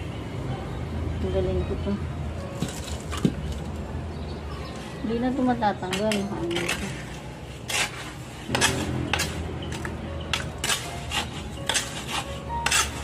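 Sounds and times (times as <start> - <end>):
trowel scraping wet mortar: 6.0 - 13.0.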